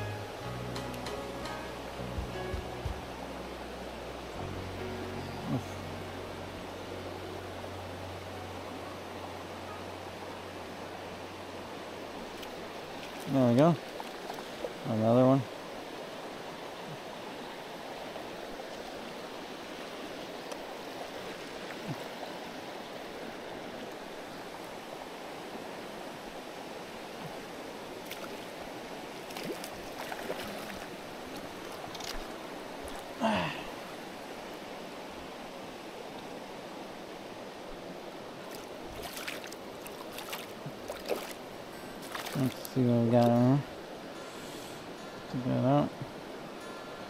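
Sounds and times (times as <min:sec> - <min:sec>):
river rushing over rocks: 0:00.0 - 0:47.0
small water splashes: 0:12.2 - 0:14.9, 0:28.0 - 0:33.2, 0:38.4 - 0:43.4.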